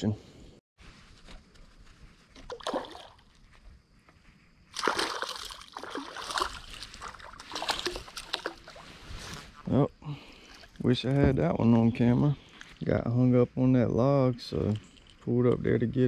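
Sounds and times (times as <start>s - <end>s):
fish splashing in water: 2.4s - 3.3s, 4.7s - 8.8s.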